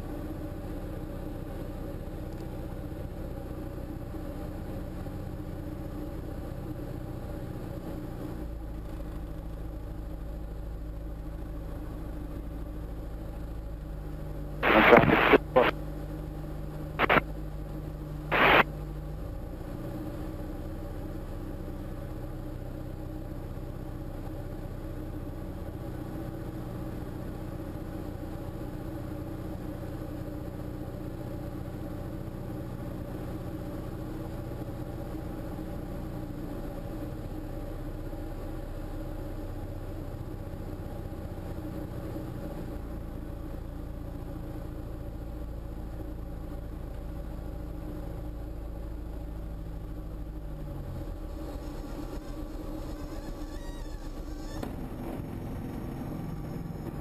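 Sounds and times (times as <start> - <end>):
aircraft propeller engine droning: 0.0 - 57.0
loud bursts of noise: 14.6 - 15.8, 17.0 - 17.2, 18.3 - 18.7.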